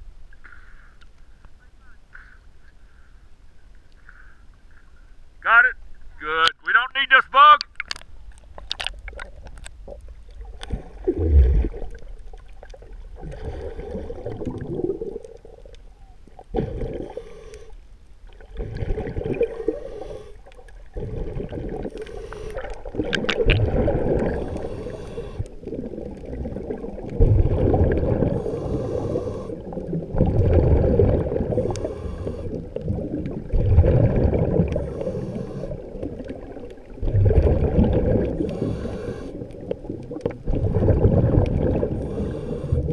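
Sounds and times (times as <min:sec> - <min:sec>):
muffled underwater gurgling: 0:18.4 - 0:42.9.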